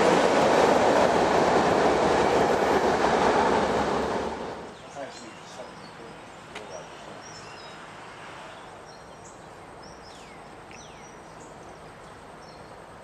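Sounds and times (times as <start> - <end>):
outdoor background hiss: 0.0 - 13.0
birds chirping and calling: 4.8 - 7.8, 8.5 - 12.7.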